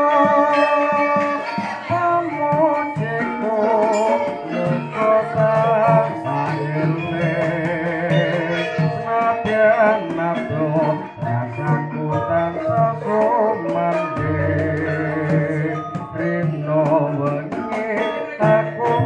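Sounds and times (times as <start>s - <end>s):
drum steady beat: 0.0s - 19.0s
metallophones: 0.0s - 19.0s
voices singing with vibrato: 0.0s - 19.0s.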